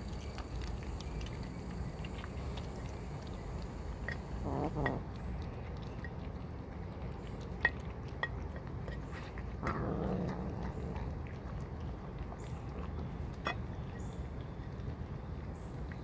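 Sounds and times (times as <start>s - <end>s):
cats chewing: 0.0s - 16.0s
low background rumble: 0.0s - 16.0s.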